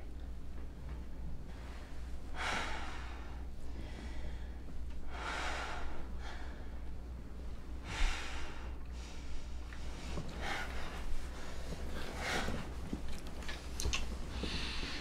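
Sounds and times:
low steady hum: 0:00.0 - 0:15.0
person breathing: 0:01.5 - 0:06.9, 0:07.8 - 0:13.0, 0:14.3 - 0:15.0.

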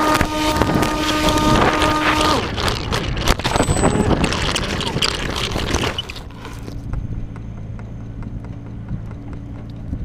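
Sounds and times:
camera handling rubbing: 0:01.2 - 0:06.9.

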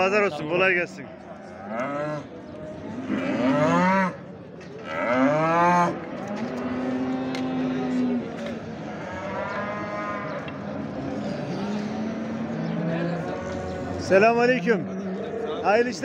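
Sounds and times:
cattle mooing: 0:04.8 - 0:08.2, 0:08.8 - 0:15.6.

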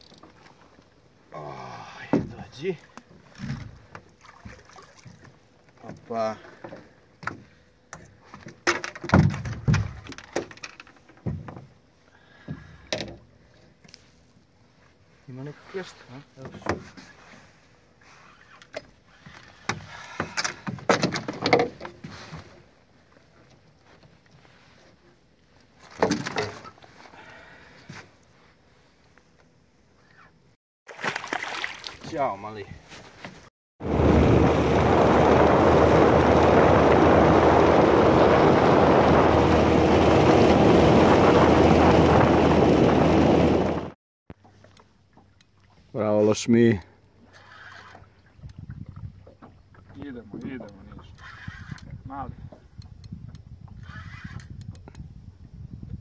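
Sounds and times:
fishing gear rattling in a boat: 0:00.0 - 0:01.1, 0:02.1 - 0:14.2, 0:18.1 - 0:28.0, 0:46.4 - 0:55.2
boat motor running: 0:33.8 - 0:44.0
water rushing: 0:33.8 - 0:44.0
wind on microphone: 0:33.8 - 0:44.0, 0:48.3 - 0:49.3, 0:50.8 - 0:56.0.

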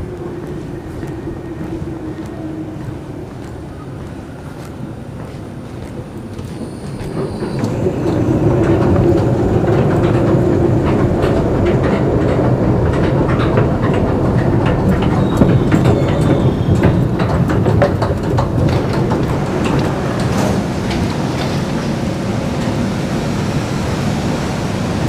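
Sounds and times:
clicks and clatters of moving steps: 0:00.0 - 0:21.7
escalator mechanical rumble: 0:06.9 - 0:25.0.

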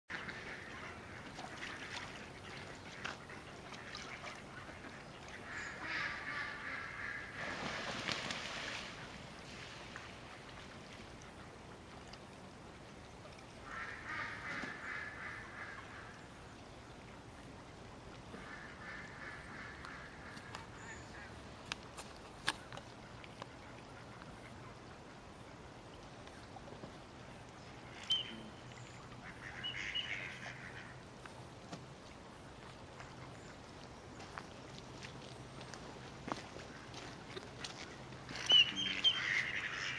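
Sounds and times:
outdoor background hiss: 0:00.1 - 0:39.9
ducks calling: 0:03.0 - 0:07.6, 0:29.2 - 0:31.0, 0:38.3 - 0:39.9.

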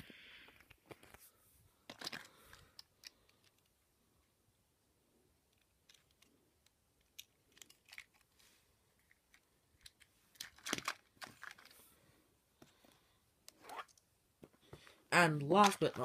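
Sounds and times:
plastic toy clicks and rustles: 0:05.5 - 0:08.4, 0:09.0 - 0:11.8, 0:15.4 - 0:16.0.

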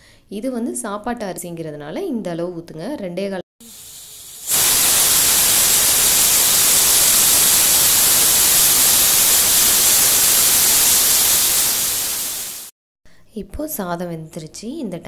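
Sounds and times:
pressure cooker steam hiss: 0:03.6 - 0:12.8.

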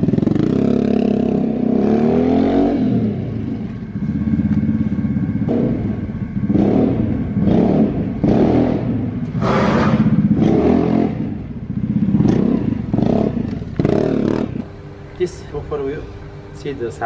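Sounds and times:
scooter engine revving past: 0:00.0 - 0:04.4, 0:05.5 - 0:14.6.

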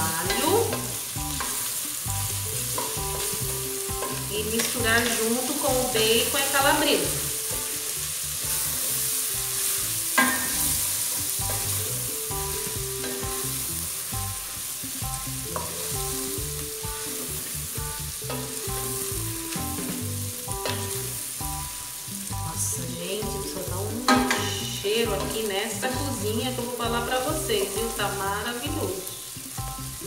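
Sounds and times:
food sizzling in a pot: 0:00.0 - 0:30.0
wooden spoon stirring: 0:00.1 - 0:14.1.

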